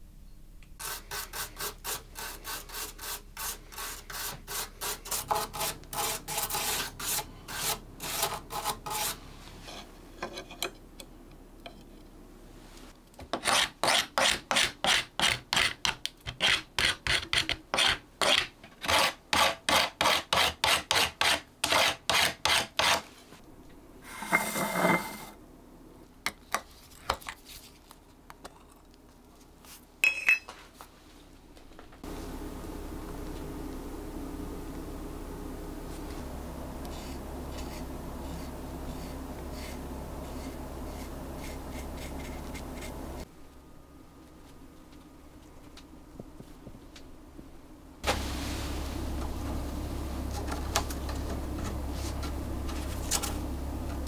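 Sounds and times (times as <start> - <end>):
metal file rasping on metal: 0.8 - 10.4, 13.4 - 23.1
short scrape: 24.0 - 25.4.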